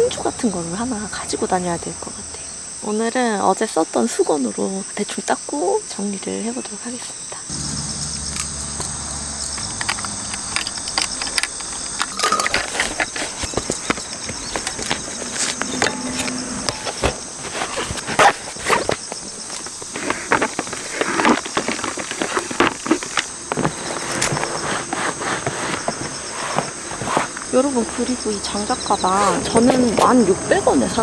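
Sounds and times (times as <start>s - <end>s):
high-pitched insect drone: 6.6s - 26.8s
gear knocking and clinking: 7.5s - 17.1s
cloth rustling: 9.6s - 28.2s.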